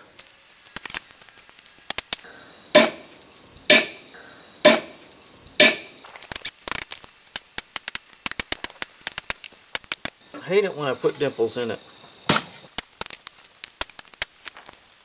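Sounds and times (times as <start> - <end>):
hammer striking metal punch: 2.8 - 3.1, 3.7 - 5.0, 5.6 - 6.0
hammer tapping on wooden strip: 2.8 - 3.1, 3.7 - 4.0, 4.7 - 5.0, 5.6 - 5.9.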